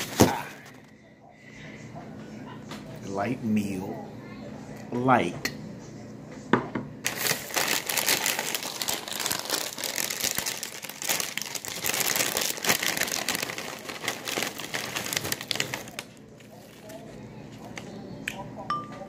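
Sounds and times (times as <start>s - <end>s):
crinkling and rustling: 0.0s - 0.9s, 7.0s - 17.9s.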